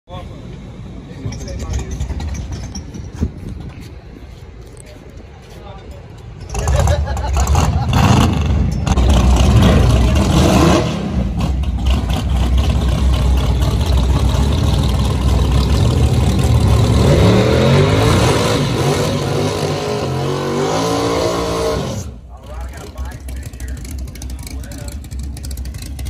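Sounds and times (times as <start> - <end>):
car engine revving hard: 6.6 - 22.2.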